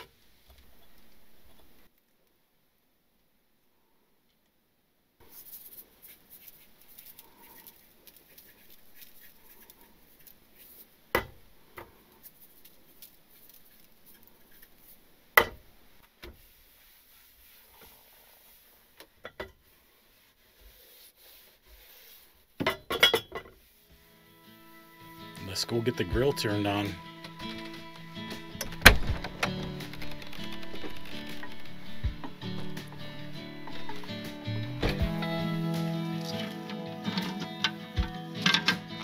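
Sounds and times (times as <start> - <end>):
hands rustling plastic wrap: 5.2 - 15.2, 23.6 - 37.6.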